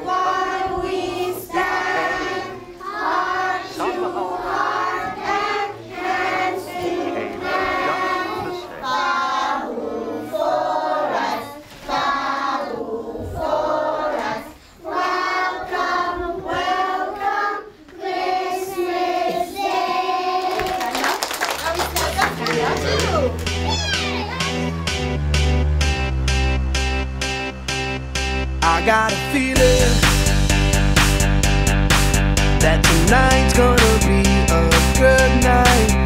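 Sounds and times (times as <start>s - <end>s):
children singing in chorus: 0.0s - 20.9s.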